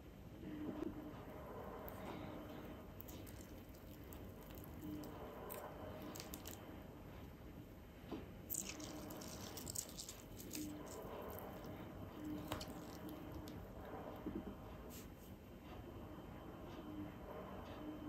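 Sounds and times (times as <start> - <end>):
wet squishes and drips: 3.0 - 6.6, 8.5 - 11.7.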